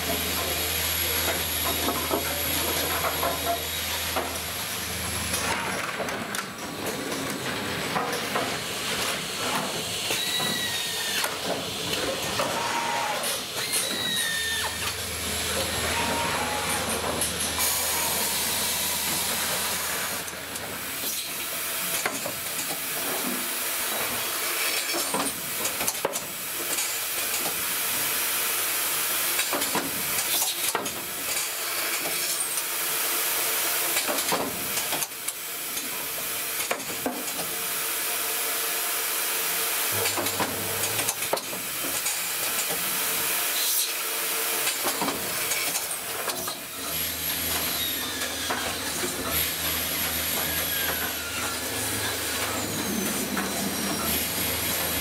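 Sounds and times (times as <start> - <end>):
machine hum: 0.0 - 9.9, 11.8 - 21.6, 39.9 - 55.0
pneumatic hiss: 8.1 - 26.1, 39.8 - 55.0.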